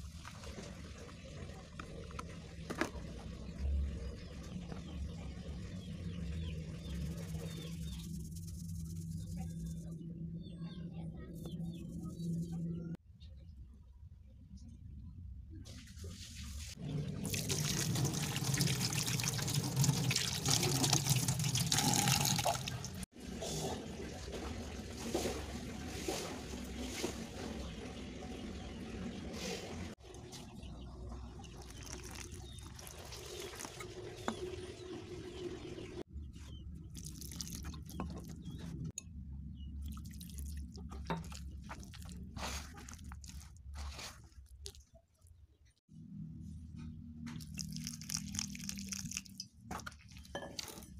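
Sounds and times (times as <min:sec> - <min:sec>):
water pouring: 0:16.8 - 0:28.6, 0:31.3 - 0:36.0, 0:36.9 - 0:38.6, 0:39.8 - 0:43.5, 0:47.4 - 0:50.9
hands squishing dough: 0:39.8 - 0:45.4.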